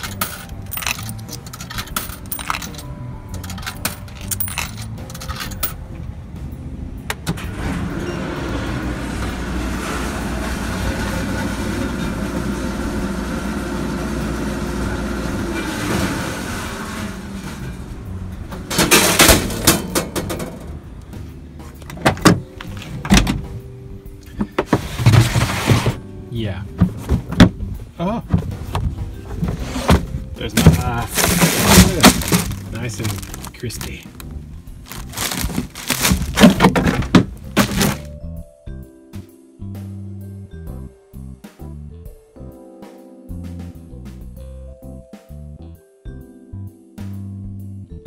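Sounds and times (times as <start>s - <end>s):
vending machine running: 7.4s - 20.8s, 30.6s - 34.2s, 34.8s - 38.1s
cooler clattering knocks: 26.8s - 27.6s, 35.2s - 38.1s.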